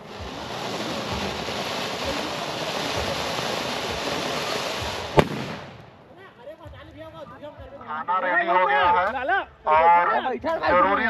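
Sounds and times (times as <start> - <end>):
firework fountain hissing: 0.0 - 6.2
sharp bang: 5.2 - 6.0.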